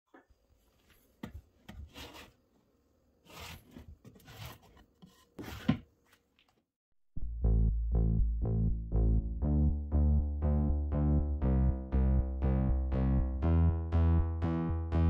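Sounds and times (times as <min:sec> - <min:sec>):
drawers sliding open and shut: 0:03.2 - 0:05.9.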